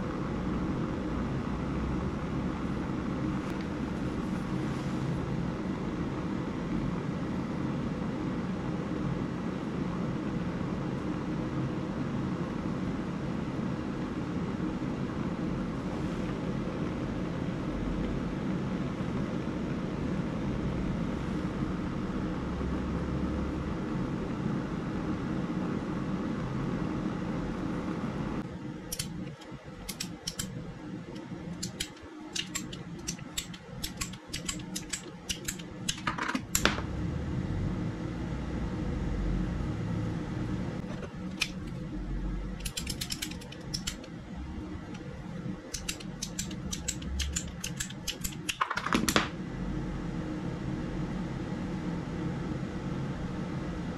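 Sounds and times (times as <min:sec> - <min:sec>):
steady rumbling hiss: 0:00.0 - 0:53.9
sharp clicks and taps: 0:29.9 - 0:30.5, 0:31.6 - 0:36.8, 0:45.7 - 0:49.3.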